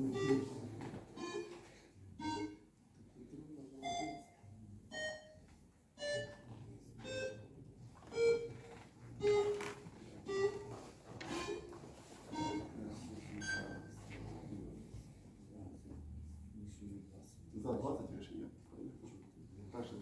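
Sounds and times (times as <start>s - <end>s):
electronic beeping melody: 0.0s - 2.6s, 3.8s - 5.4s, 6.0s - 7.5s, 8.1s - 14.0s.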